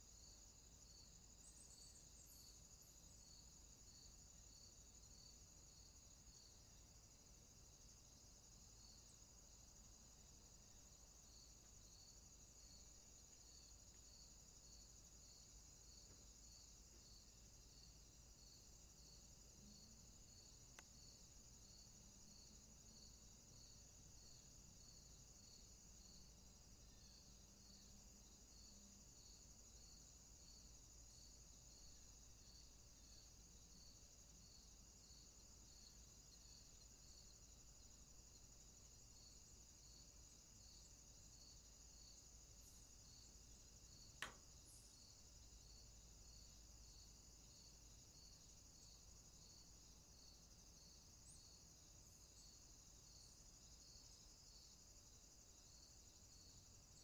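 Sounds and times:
high-pitched insect hiss: 0:00.0 - 0:57.0
insect chirping: 0:00.0 - 0:57.0
sharp click: 0:44.2 - 0:44.4.

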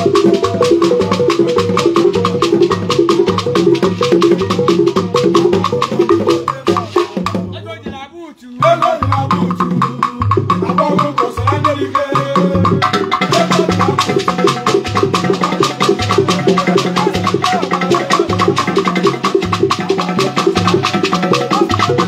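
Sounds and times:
fast hand percussion: 0:00.0 - 0:08.0, 0:08.6 - 0:22.0
repeating low beat: 0:00.0 - 0:08.0
highlife music: 0:00.0 - 0:22.0.

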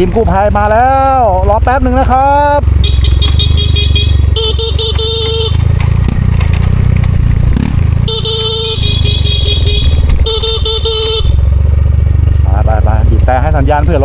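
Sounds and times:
motorcycle engine running: 0:00.0 - 0:14.0
motorcycle horn honking: 0:02.8 - 0:05.8, 0:08.0 - 0:11.6.

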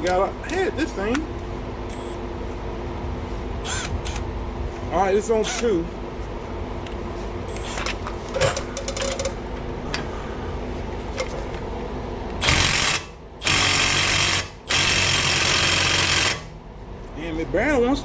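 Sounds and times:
low steady hum: 0:00.0 - 0:18.0
impact ratchet hammering: 0:12.4 - 0:16.5.

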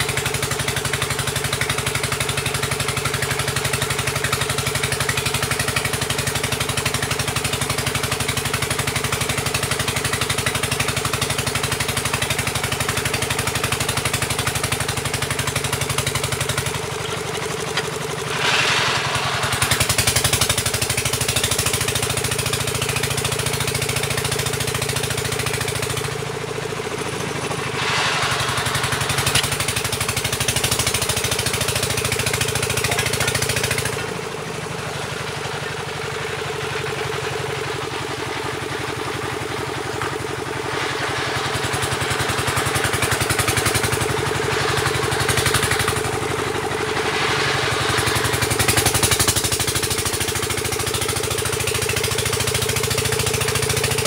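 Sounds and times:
drilling rig engine running: 0:00.0 - 0:54.0
short burst of hiss: 0:16.3 - 0:21.6, 0:27.4 - 0:32.1, 0:45.4 - 0:49.6.

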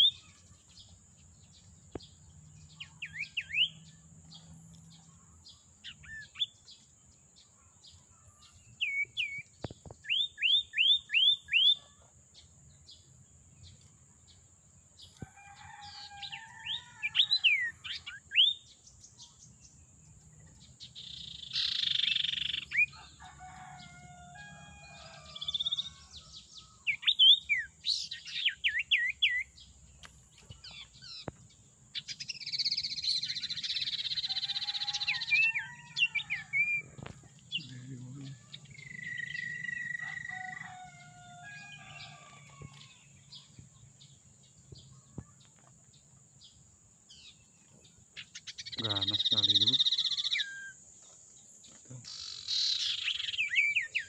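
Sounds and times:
bird rasping chatter: 0:48.2 - 0:50.8.

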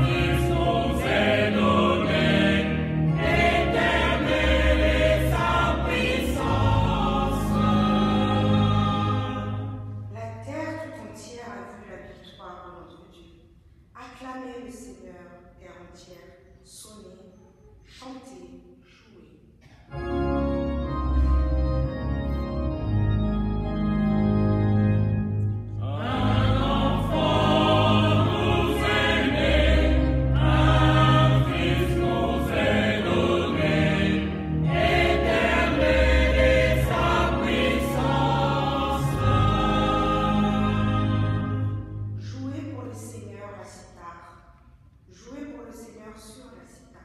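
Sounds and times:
choir singing: 0:00.0 - 0:10.1, 0:25.7 - 0:42.2
sustained instrumental chords: 0:00.0 - 0:10.2, 0:19.9 - 0:42.8.

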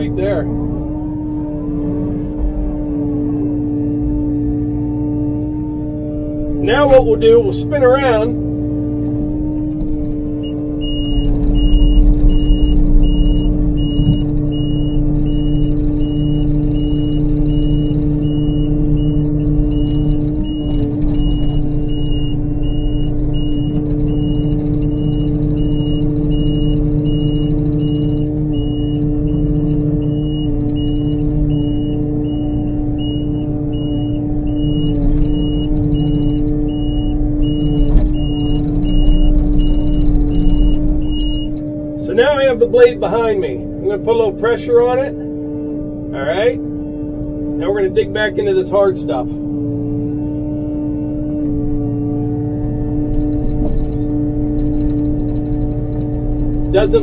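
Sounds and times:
excavator diesel engine running: 0:00.0 - 0:57.0
travel alarm beeping: 0:10.4 - 0:41.6.

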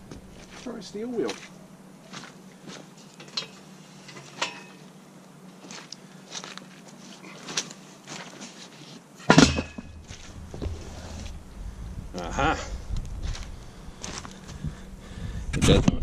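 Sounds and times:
light metal clanks: 0:03.0 - 0:04.9, 0:09.2 - 0:10.2.

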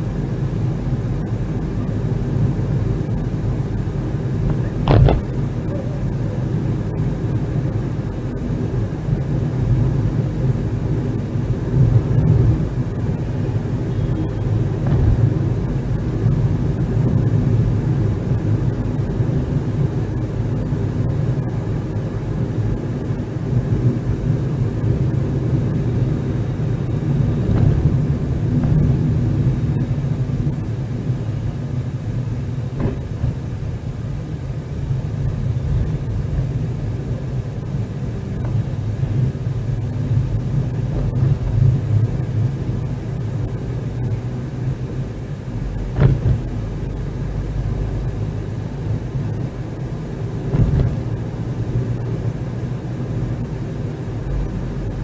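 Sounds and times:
car engine and road rumble: 0:00.0 - 0:55.0
short knocks: 0:04.5 - 0:05.4.

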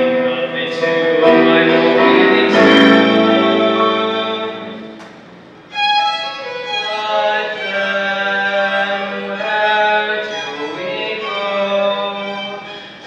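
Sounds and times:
choir singing held chords: 0:00.0 - 0:05.3.

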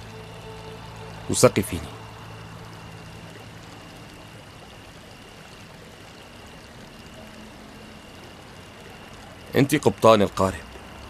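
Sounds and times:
running water rushing: 0:00.0 - 0:11.0.

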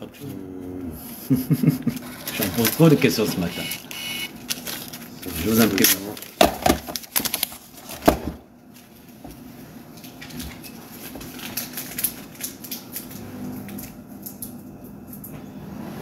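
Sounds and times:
paper rustling: 0:01.7 - 0:08.2.

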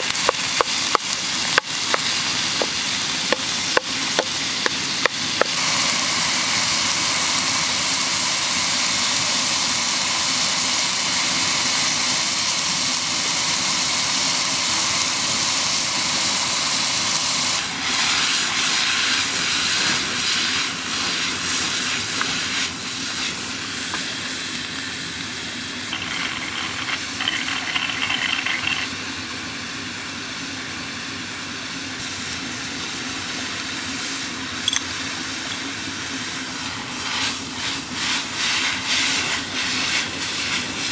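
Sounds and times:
meat and onions sizzling: 0:00.0 - 0:40.9.

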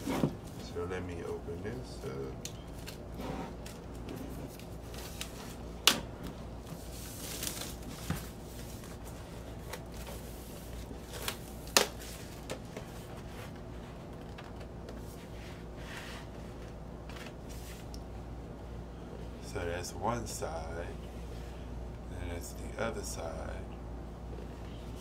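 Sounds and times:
plastic wrap tearing and crinkling: 0:06.9 - 0:08.1.

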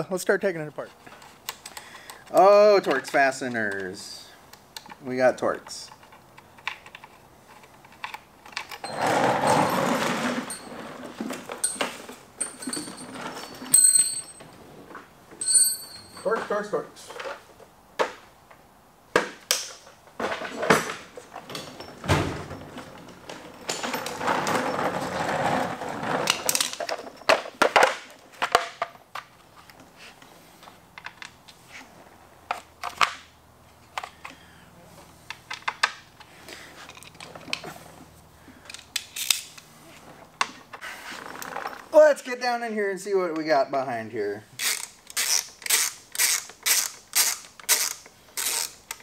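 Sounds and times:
tools clattering and rummaging: 0:05.9 - 0:17.6, 0:19.6 - 0:29.7
hand tools clinking: 0:07.8 - 0:14.6, 0:15.4 - 0:16.7.

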